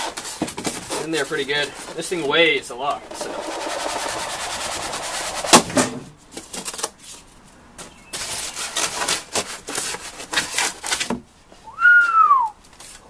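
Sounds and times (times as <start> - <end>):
foam scraping on cardboard: 0.0 - 5.8, 8.1 - 11.1.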